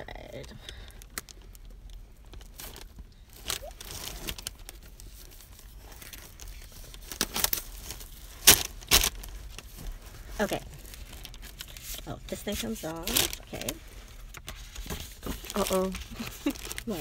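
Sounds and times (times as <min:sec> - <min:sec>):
packaging rustling: 0:00.9 - 0:17.0
packaging ripping: 0:02.3 - 0:09.7, 0:12.6 - 0:17.0.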